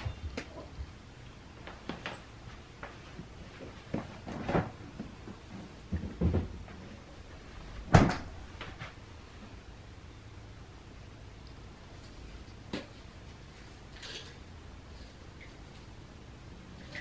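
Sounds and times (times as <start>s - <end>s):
household knocks and bumps: 3.9s - 7.0s, 7.8s - 8.8s.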